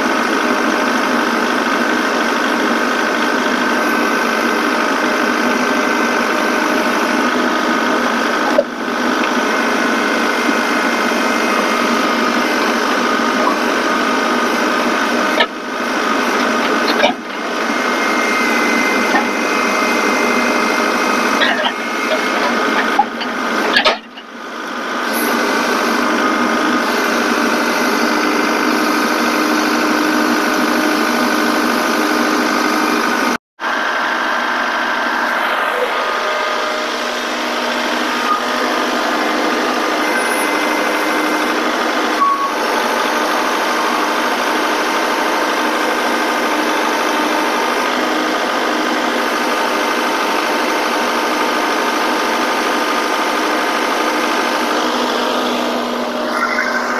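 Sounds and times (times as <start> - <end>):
tractor diesel engine whining: 0.0 - 56.9
hydraulics lifting: 3.3 - 33.3.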